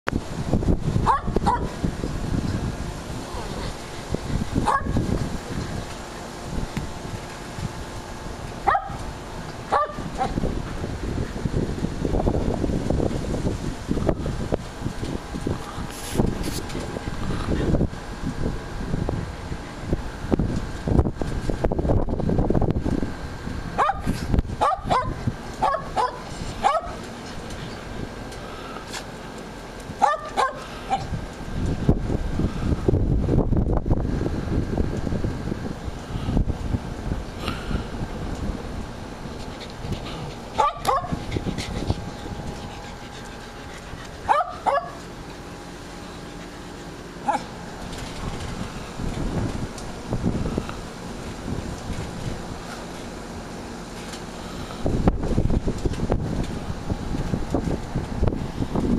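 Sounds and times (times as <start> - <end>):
low rumble on microphone: 0.1 - 58.9
dog barking: 1.0 - 1.7, 4.6 - 5.0, 8.7 - 9.0, 9.7 - 10.3, 23.8 - 27.0, 30.0 - 31.1, 40.6 - 41.2, 44.3 - 45.0, 47.3 - 47.5.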